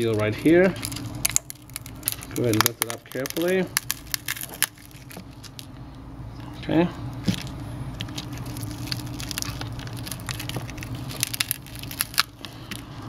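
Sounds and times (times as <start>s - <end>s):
foil crackling as peeled: 0.0s - 5.7s, 7.3s - 13.0s
steady low hum: 0.0s - 13.0s.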